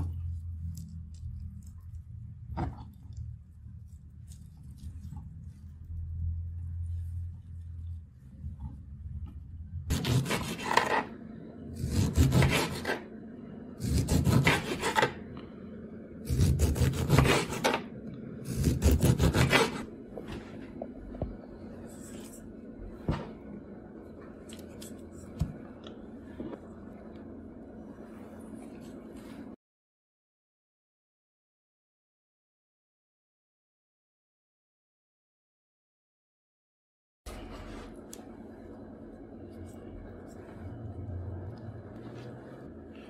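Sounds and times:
knife sawing through lemon: 9.9s - 11.1s, 11.8s - 13.0s, 13.8s - 15.1s, 16.3s - 17.7s, 18.5s - 19.9s.

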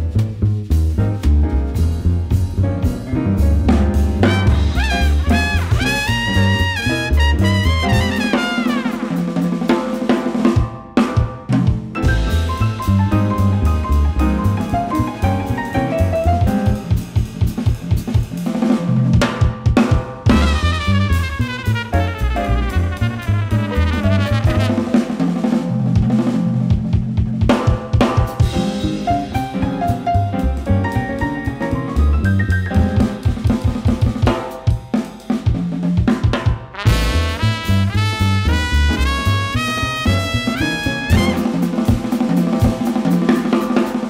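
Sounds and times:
double bass: 0.0s - 9.4s, 12.0s - 19.2s, 20.3s - 27.4s, 28.4s - 34.2s, 36.8s - 43.0s
drums: 0.0s - 44.0s
piano: 0.0s - 44.0s
trumpet playing: 4.2s - 9.3s, 20.3s - 25.2s, 36.7s - 41.7s.

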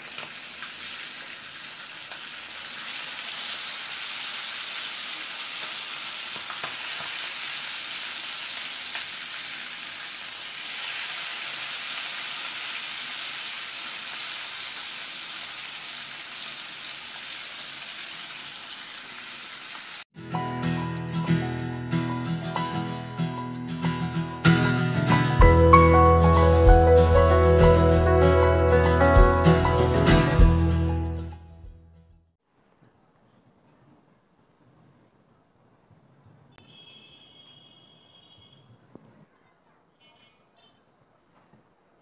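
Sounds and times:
chicken sizzling in hot oil: 0.0s - 20.1s
music: 20.2s - 32.3s.

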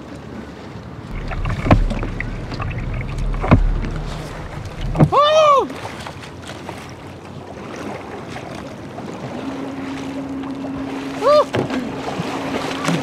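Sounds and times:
water lapping: 0.0s - 13.0s
steady low hum: 1.1s - 5.4s
wind on microphone: 1.1s - 6.0s
person crying out: 11.2s - 11.5s.

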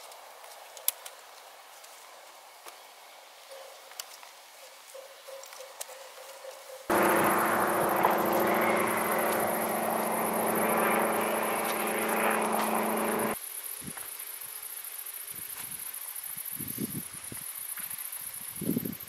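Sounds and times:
crickets chirping: 3.4s - 19.0s
engine-like drone with hiss: 6.9s - 13.6s.

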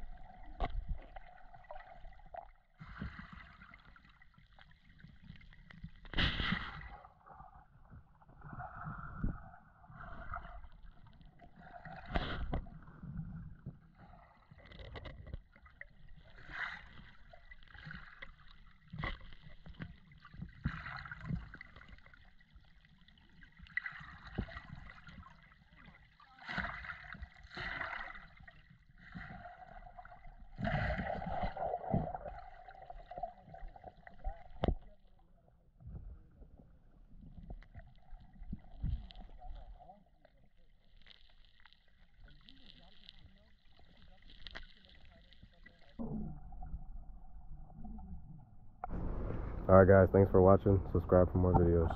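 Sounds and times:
muffled underwater water rushing: 0.0s - 51.9s.

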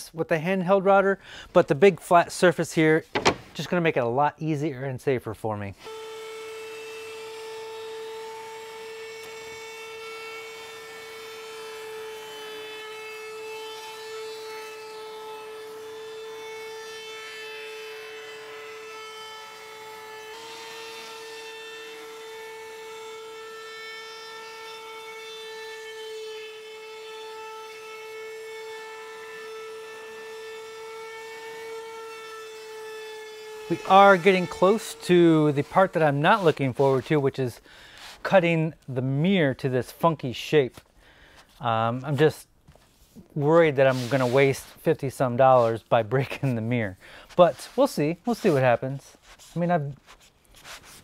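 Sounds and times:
router cutting wood: 5.8s - 37.3s.

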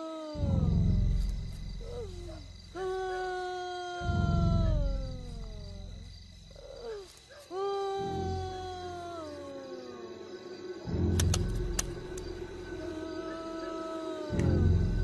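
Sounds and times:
howls sliding down in pitch: 12.0s - 15.0s.

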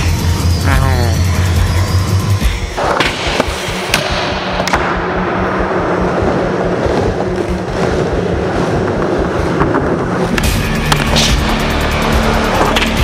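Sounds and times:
skateboard wheels rolling: 2.7s - 13.0s
skateboard clacking: 5.6s - 11.6s.

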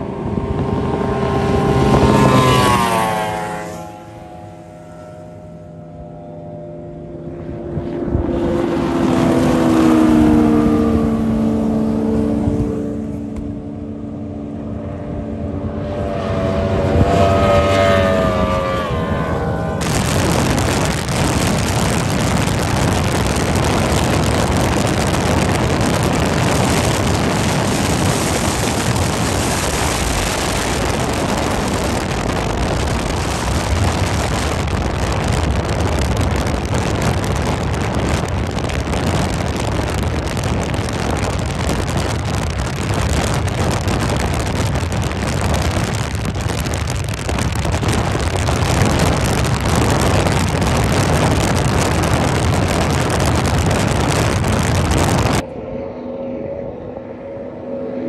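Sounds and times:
boat engine drone: 0.0s - 58.0s
wind buffeting microphone: 0.0s - 58.0s.

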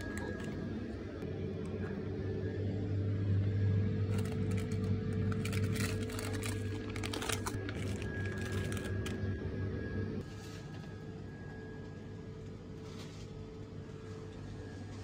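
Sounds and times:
freezer cases humming: 0.0s - 15.0s
plastic packets crinkling: 4.1s - 9.2s.

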